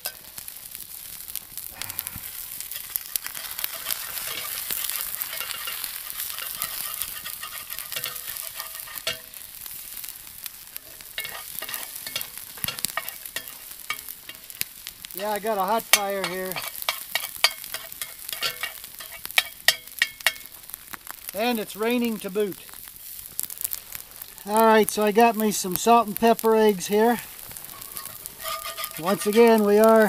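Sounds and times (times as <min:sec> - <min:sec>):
eggs sizzling in a skillet: 0:00.0 - 0:30.0
metal spatula scraping a pan: 0:02.3 - 0:10.1, 0:10.8 - 0:20.6, 0:27.0 - 0:30.0.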